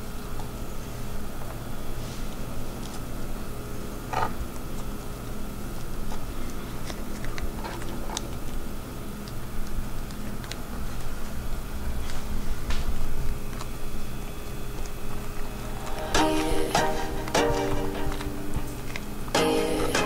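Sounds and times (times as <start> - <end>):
rice paper clicks and crackles: 4.1 - 16.2
low hum: 12.9 - 20.0.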